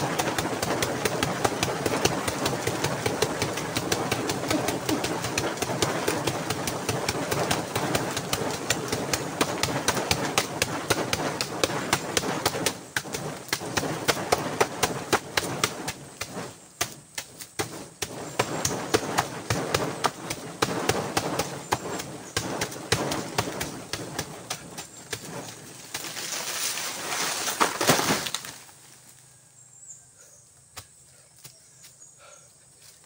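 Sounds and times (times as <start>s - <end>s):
fists punching tree trunk: 0.0s - 26.1s.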